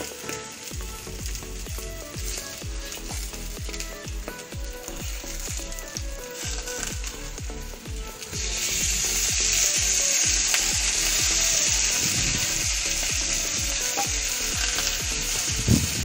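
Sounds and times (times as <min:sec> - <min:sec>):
fish sizzling in a pan: 0:00.0 - 0:16.0.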